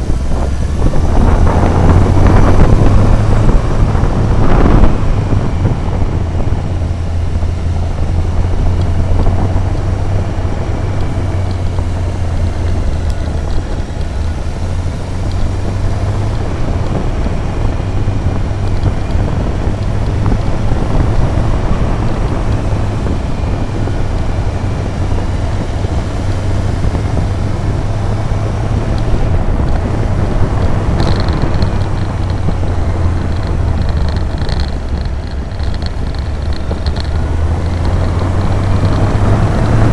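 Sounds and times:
road and wind noise: 0.0 - 39.9
vehicle engine running: 0.0 - 39.9.

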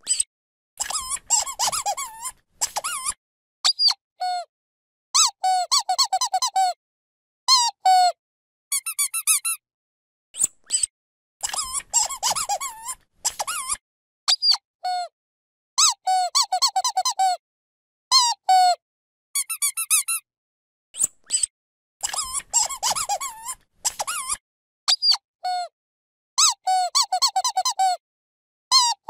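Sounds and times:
dog squeaky toy squeaking: 0.0 - 4.0, 5.2 - 6.8, 8.7 - 9.6, 11.4 - 14.6, 15.8 - 17.4, 19.4 - 20.2, 22.0 - 25.2, 26.4 - 28.0.

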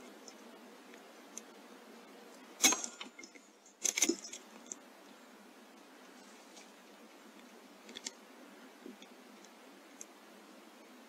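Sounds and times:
air rifle shot: 2.6 - 3.1.

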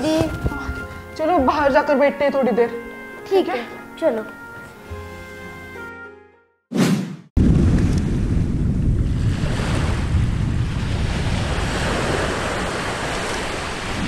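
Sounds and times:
volcanic eruption rumbling: 7.4 - 13.0.

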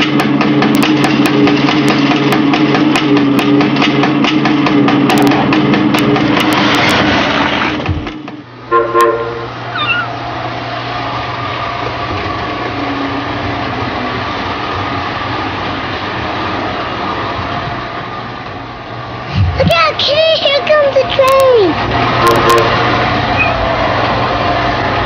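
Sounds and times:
toy trains rolling rumble: 0.0 - 8.4, 10.2 - 25.0
multi-tone train whistle: 8.6 - 9.7, 22.1 - 23.8.

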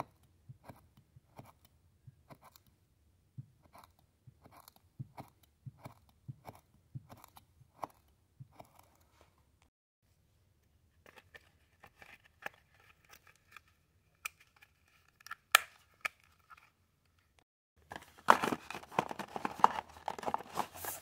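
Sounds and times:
cardboard box rustling and scraping: 17.9 - 21.0.

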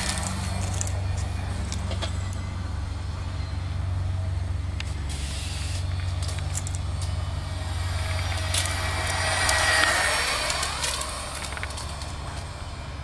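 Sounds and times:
toy car motor whirring: 0.0 - 1.8, 4.8 - 12.6
low rumble: 5.8 - 13.0
sharp ticks: 7.8 - 12.5.

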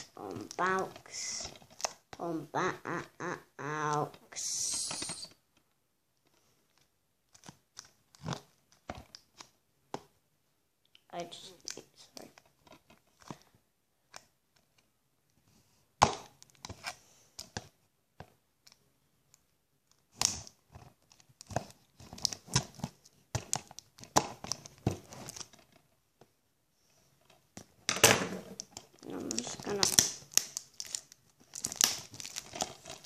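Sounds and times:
plastic packaging crinkling: 28.5 - 33.0.

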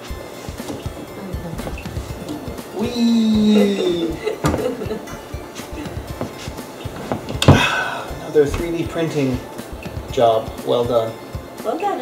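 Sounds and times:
person dropping onto couch: 0.5 - 10.2
light knocks: 4.4 - 7.7.

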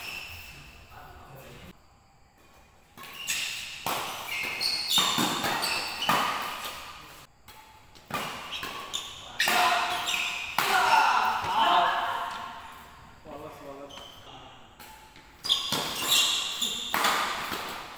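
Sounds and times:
shoes squeaking on court: 0.0 - 0.9, 2.4 - 17.9
rackets hitting shuttlecock: 2.9 - 12.8, 14.7 - 17.9.

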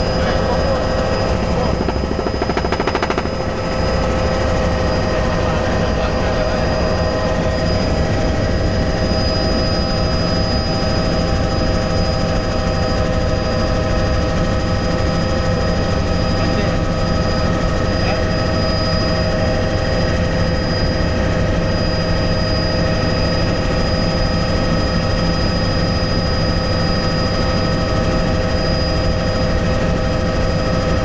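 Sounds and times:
rapid rotor flutter: 0.0 - 9.6
helicopter engine whine and drone: 0.0 - 31.0.

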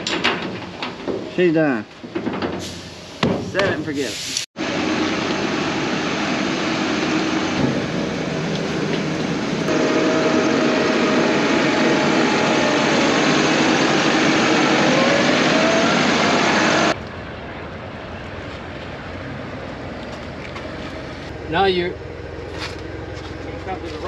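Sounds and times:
tractor diesel engine running: 4.6 - 17.0, 18.3 - 24.0.

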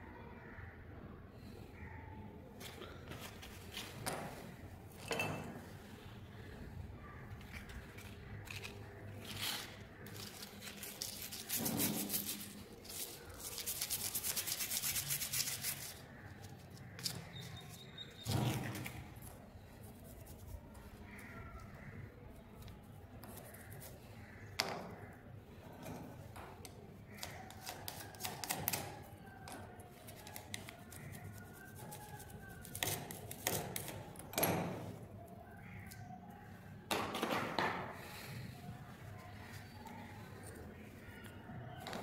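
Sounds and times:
wire brush scratching metal: 8.4 - 16.1.

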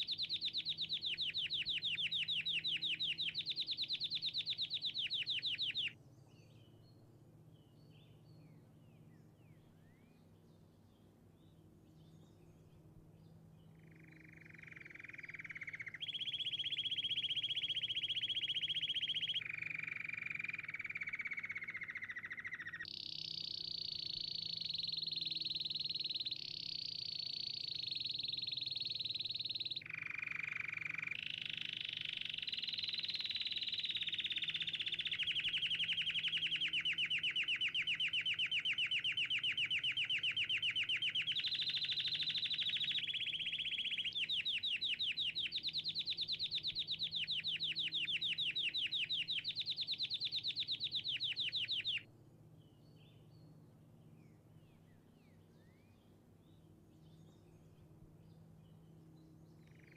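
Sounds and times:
canary singing: 0.0 - 6.0, 13.6 - 52.1.

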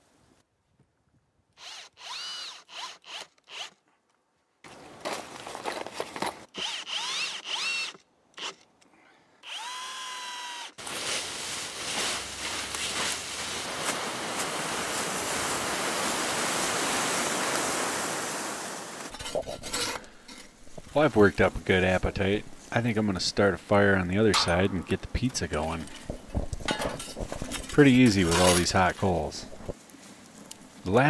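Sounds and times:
cordless drill whine: 1.6 - 3.8, 6.5 - 8.6, 9.4 - 10.8
rake dragging through dry leaves: 10.8 - 21.0, 27.0 - 30.9.

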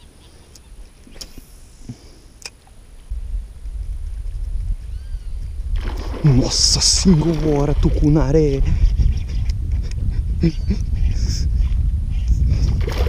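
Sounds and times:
low rumble: 3.0 - 13.0.

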